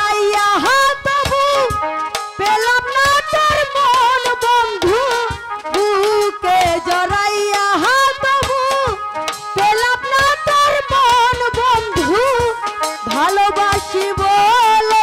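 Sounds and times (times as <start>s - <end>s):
hand drum beat: 4.8s - 7.0s.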